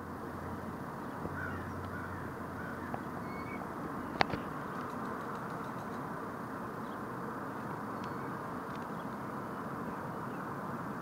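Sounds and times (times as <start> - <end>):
outdoor background noise: 0.0 - 11.0
faint bird calls: 1.0 - 4.2.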